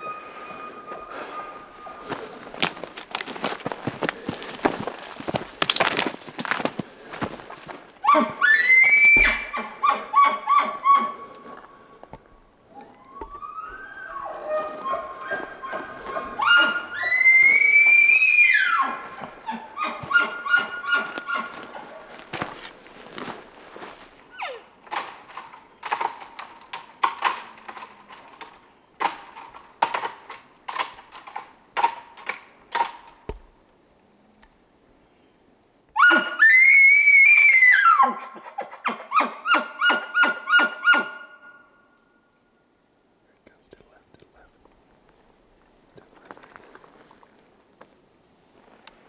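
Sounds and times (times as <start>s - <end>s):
elk bugling: 0.0s - 5.4s, 8.0s - 11.9s, 12.7s - 22.6s.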